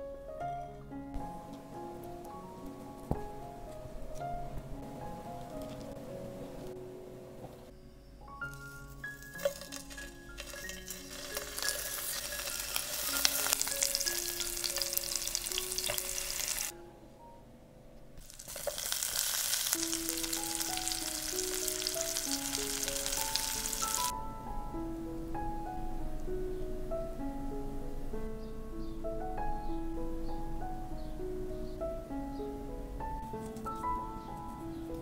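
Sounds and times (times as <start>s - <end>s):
cheese sizzling in hot oil: 9.2s - 16.7s, 18.2s - 24.1s.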